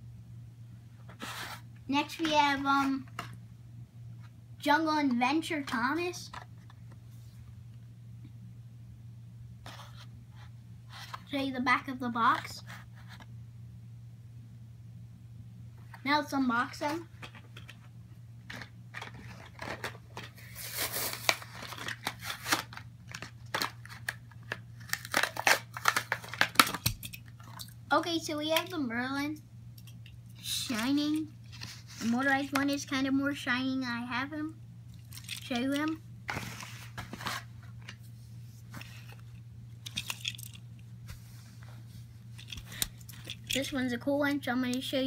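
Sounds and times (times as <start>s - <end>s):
steady low hum: 0.0s - 45.0s
plastic packaging crackling and tearing: 18.5s - 27.7s, 35.0s - 36.0s.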